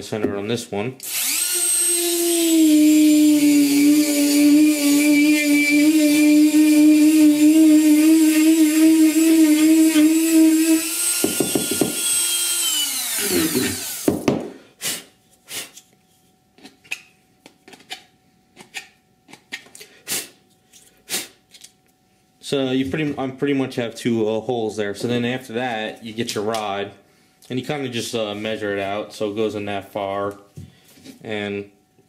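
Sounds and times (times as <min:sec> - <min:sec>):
rotary tool motor whining: 0:01.0 - 0:14.2.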